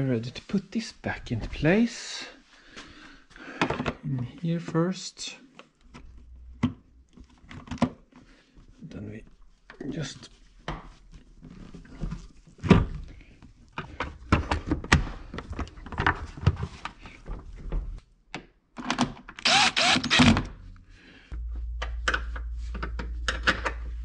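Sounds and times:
steady low hum: 20.5 - 24.0.

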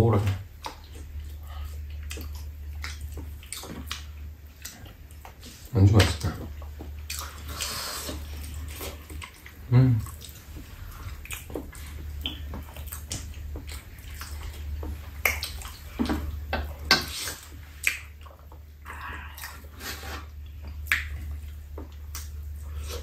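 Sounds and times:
people chewing food: 0.0 - 23.0
steady low hum: 0.0 - 23.0
wet lip-smacks and mouth clicks: 0.6 - 16.3, 16.9 - 23.0.

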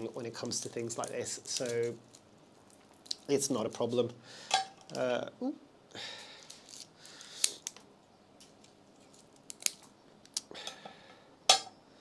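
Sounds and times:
dry roots rustling: 0.0 - 4.0.

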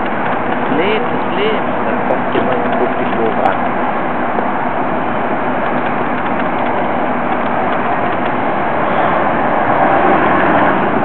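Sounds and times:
coach diesel engine rumble: 0.0 - 11.0.

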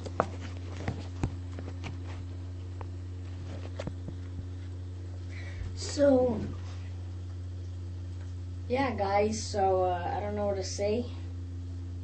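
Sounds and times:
camera handling knocks and rubbing: 0.0 - 2.3, 3.3 - 4.4
steady low hum: 0.0 - 12.0.

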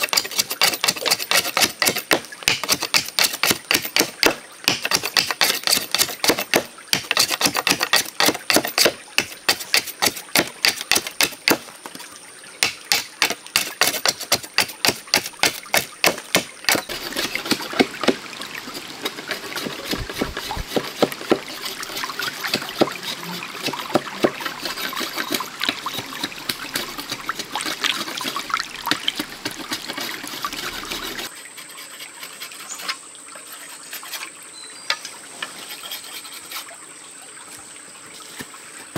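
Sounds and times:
knife chopping bamboo: 0.0 - 11.6, 12.6 - 18.2
stream running over rocks: 0.0 - 38.9.

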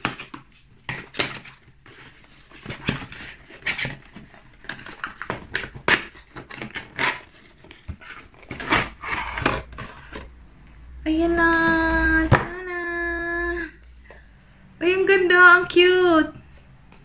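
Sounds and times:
cardboard box rustling and scraping: 6.2 - 10.4.

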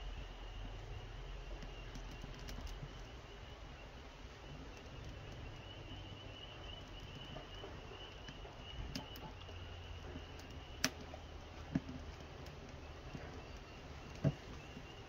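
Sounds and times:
twigs crackling in fire: 0.0 - 15.0.

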